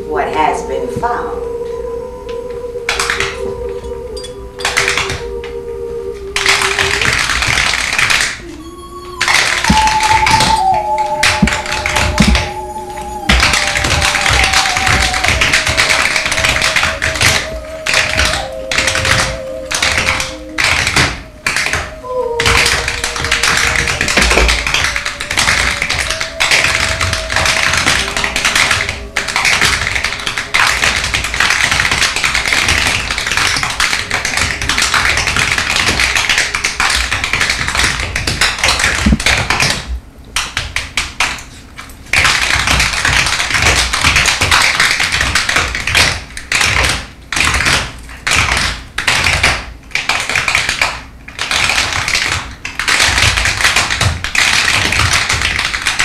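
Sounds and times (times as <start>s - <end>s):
tap shoes striking a stage floor: 2.9s - 3.6s, 4.6s - 5.6s, 6.4s - 8.4s, 9.2s - 56.0s.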